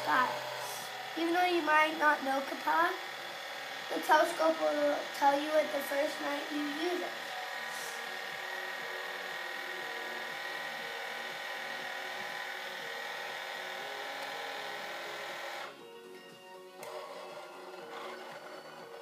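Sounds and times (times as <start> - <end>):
electric motor whine: 0.0 - 19.0.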